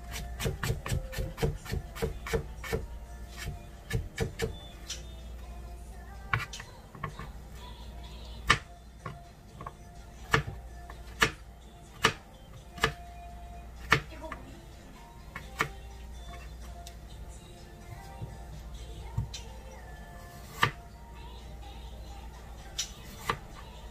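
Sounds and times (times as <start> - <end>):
quiet background music: 0.0 - 23.9
knife chopping on plastic board: 0.1 - 4.6, 10.3 - 11.4, 12.0 - 12.2, 12.8 - 13.0, 13.8 - 14.1.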